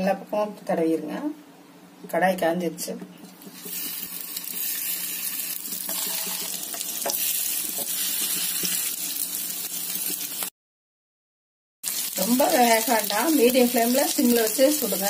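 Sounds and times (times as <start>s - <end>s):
hot oil sizzling in frying pan: 3.4s - 10.5s, 11.8s - 15.0s.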